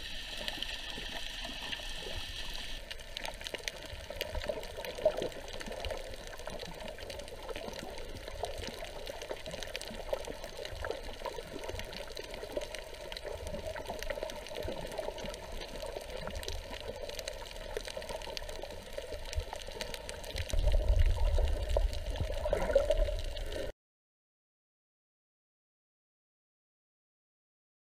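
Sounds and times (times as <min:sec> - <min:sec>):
muffled underwater hiss: 0:00.0 - 0:23.7
small clicks underwater: 0:00.1 - 0:23.7.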